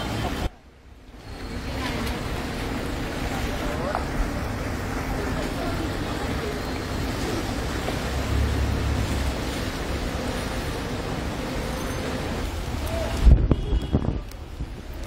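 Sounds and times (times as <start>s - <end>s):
wind buffeting microphone: 12.4s - 15.0s.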